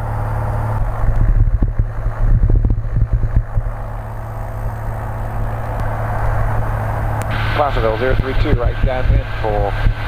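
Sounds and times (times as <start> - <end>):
low buffeting: 0.0 - 10.0
propeller plane engine drone: 0.0 - 10.0.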